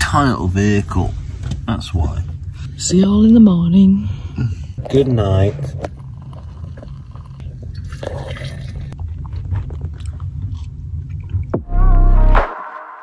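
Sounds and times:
low steady hum: 0:00.0 - 0:12.4
loud bass-heavy music: 0:11.6 - 0:13.0.

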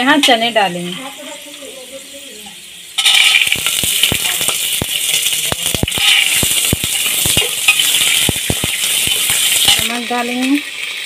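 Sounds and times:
chickpeas sizzling in hot oil: 0:00.0 - 0:11.0
metal spatula scraping a pot: 0:03.0 - 0:09.9.

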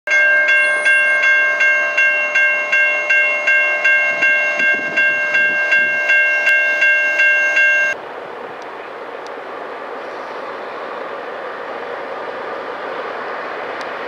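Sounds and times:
railroad crossing bell ringing: 0:00.1 - 0:08.0.

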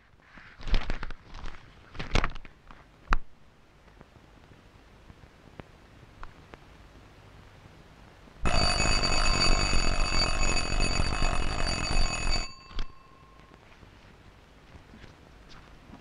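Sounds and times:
school bell ringing loudly: 0:08.4 - 0:13.4.

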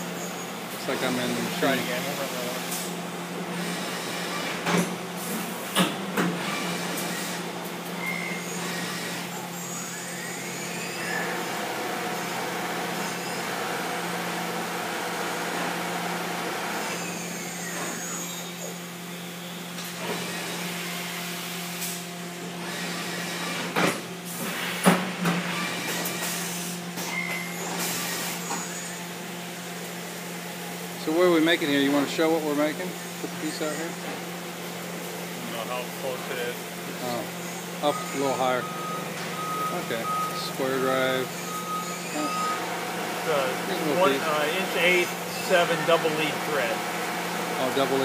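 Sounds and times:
coolant spray hissing: 0:00.0 - 0:04.3, 0:42.6 - 0:48.0
machine hum: 0:00.0 - 0:48.0.

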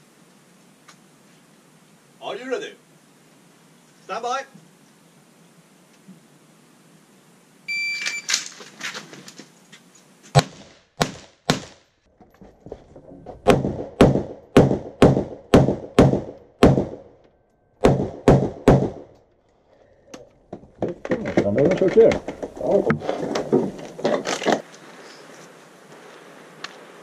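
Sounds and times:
electronic shot timer beep: 0:07.7 - 0:08.3
rifle shots: 0:17.8 - 0:19.1.

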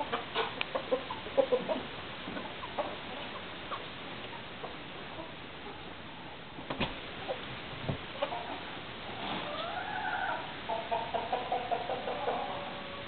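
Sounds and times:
chicken clucks: 0:00.0 - 0:05.9, 0:07.2 - 0:07.5, 0:08.1 - 0:13.0
chicken calling: 0:09.4 - 0:13.0.

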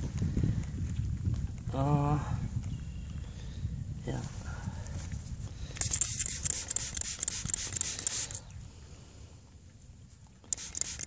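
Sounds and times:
spray bottle hissing sprays: 0:05.8 - 0:08.4, 0:10.4 - 0:11.0.

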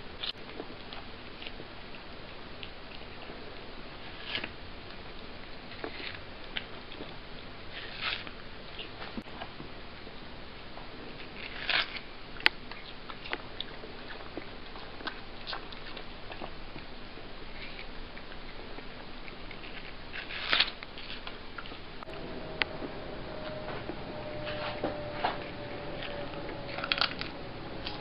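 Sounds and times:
cat chewing watermelon: 0:00.2 - 0:28.0.

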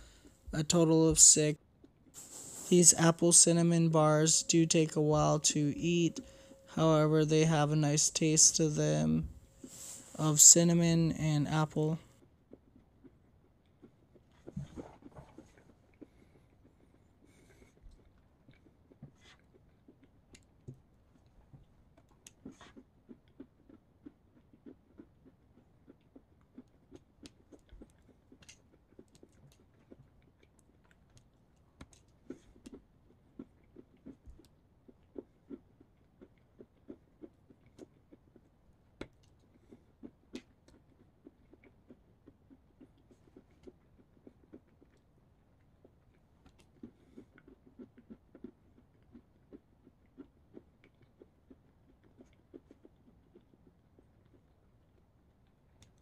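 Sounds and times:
person chewing crunchy bar: 0:12.5 - 0:56.0.

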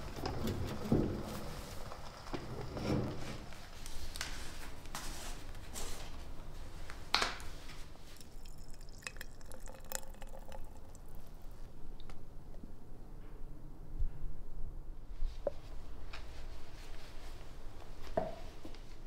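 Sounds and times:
paint pouring into glass jar: 0:08.1 - 0:11.6.

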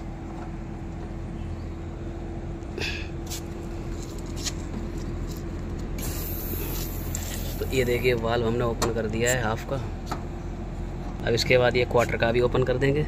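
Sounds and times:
air conditioner unit humming: 0:00.0 - 0:13.0
refrigerant hissing: 0:06.0 - 0:08.2.

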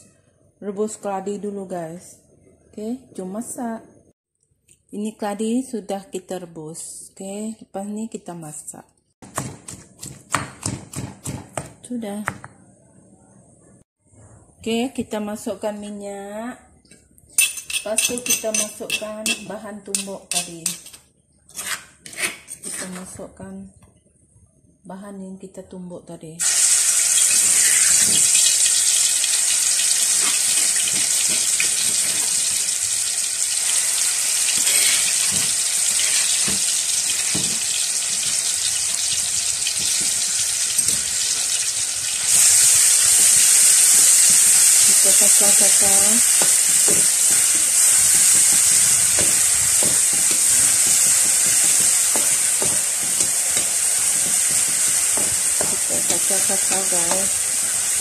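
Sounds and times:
paste sizzling in hot oil: 0:26.4 - 0:58.0.

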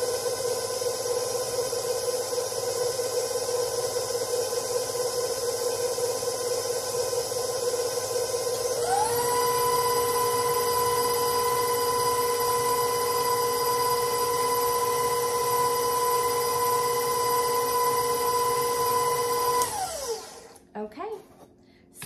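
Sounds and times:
stand mixer motor whine: 0:00.0 - 0:20.6.

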